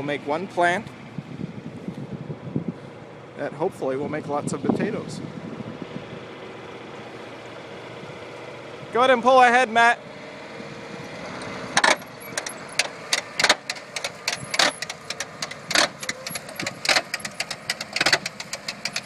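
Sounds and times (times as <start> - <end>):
tractor engine running: 0.0 - 19.0
metallic clanks and rattles: 11.4 - 19.0.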